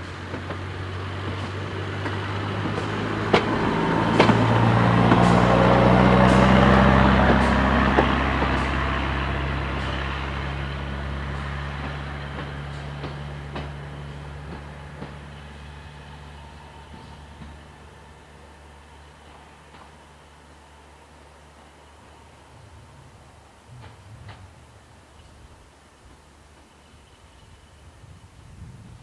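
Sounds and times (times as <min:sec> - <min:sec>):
wheels clicking over rail joints: 0:00.0 - 0:15.7
railcar engine running: 0:00.0 - 0:29.0.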